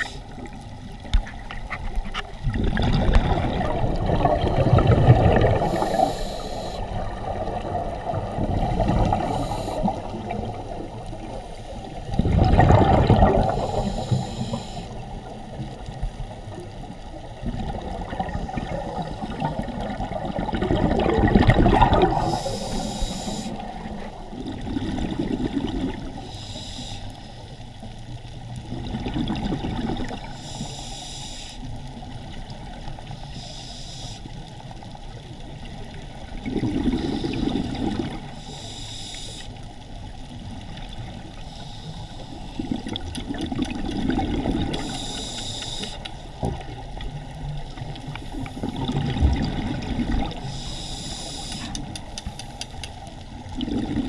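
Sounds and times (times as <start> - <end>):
exhaled bubbles underwater: 0.0 - 26.4, 27.7 - 30.7, 34.5 - 38.6, 39.7 - 54.0
scuba regulator hissing: 5.7 - 6.8, 22.2 - 23.6, 50.5 - 51.8.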